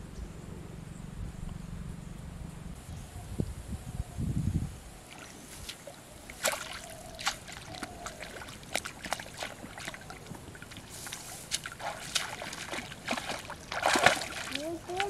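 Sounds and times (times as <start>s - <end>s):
water splashing: 5.0s - 15.0s
fish thrashing in water: 5.1s - 15.0s.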